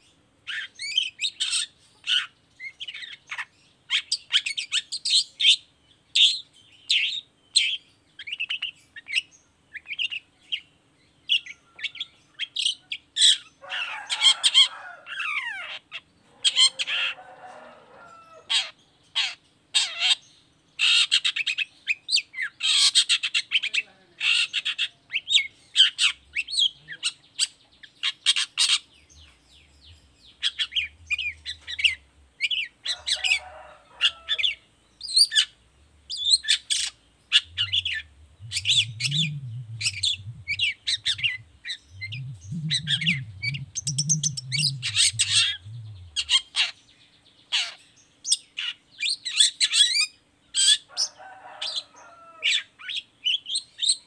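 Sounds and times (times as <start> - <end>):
bird chattering song: 18.6 - 50.8
low background sound: 34.6 - 46.4.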